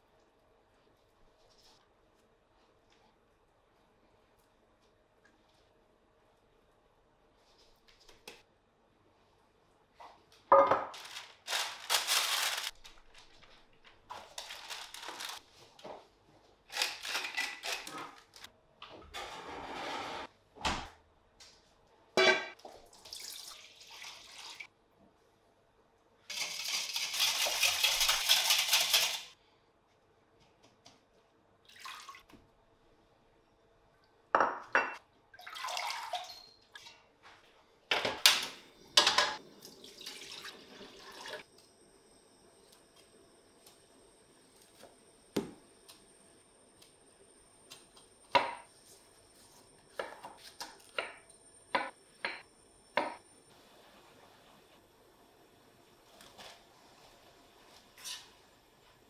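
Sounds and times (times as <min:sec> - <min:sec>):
parchment paper crinkling: 0:10.9 - 0:15.8
water poured into metal wok: 0:22.9 - 0:24.7, 0:35.4 - 0:36.4, 0:39.6 - 0:41.4.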